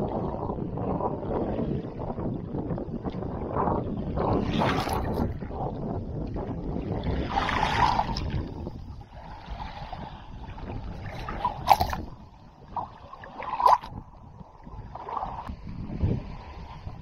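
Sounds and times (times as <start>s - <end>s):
wavelets lapping and gurgling: 0.0s - 17.0s
sharp water splashes: 10.9s - 14.0s.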